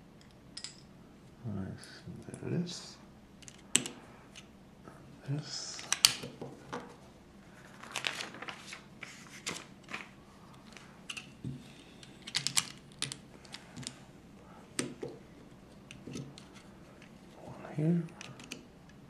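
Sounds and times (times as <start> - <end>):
plastic bricks clicking together: 12.2 - 14.0.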